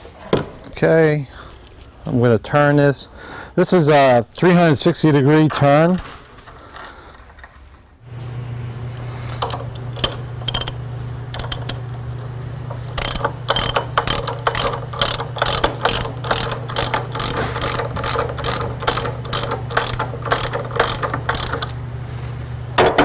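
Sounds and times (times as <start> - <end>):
steady low hum: 0.0 - 23.0
socket ratchet clicking: 9.9 - 11.9, 12.9 - 21.8.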